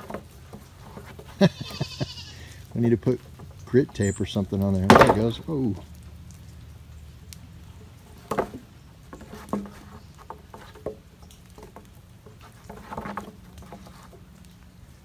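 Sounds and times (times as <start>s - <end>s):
hooves tapping on wooden plank: 8.0s - 14.7s.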